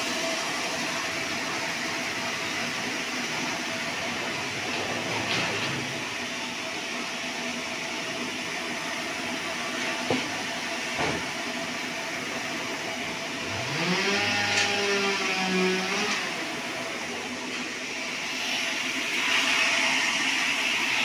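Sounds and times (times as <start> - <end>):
bandsaw mill running: 0.0 - 21.0
motor whine rising: 13.3 - 21.0.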